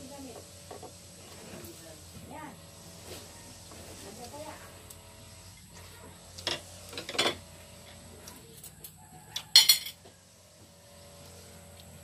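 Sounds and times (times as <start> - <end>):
tableware clatter: 6.5 - 7.4, 9.4 - 10.0
utensil clinking on plate: 9.5 - 10.0.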